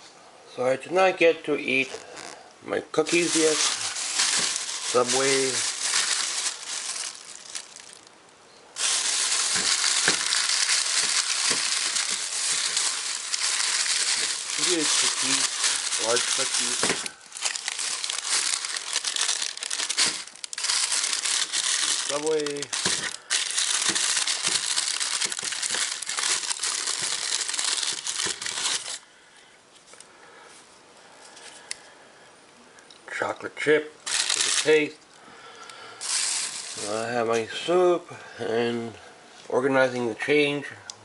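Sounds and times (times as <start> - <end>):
plastic bag crinkling: 1.7 - 2.4, 3.0 - 8.2, 8.8 - 29.0, 34.0 - 35.0, 36.0 - 37.5.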